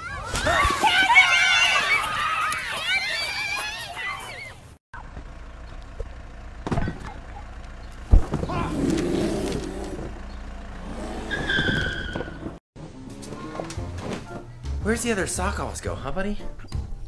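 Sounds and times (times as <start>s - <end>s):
truck engine running: 5.0s - 12.6s.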